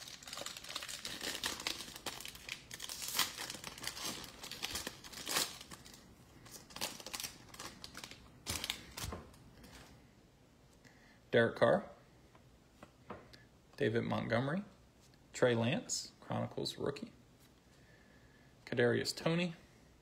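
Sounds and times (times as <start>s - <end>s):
foil wrapper crinkling: 0.0s - 9.2s.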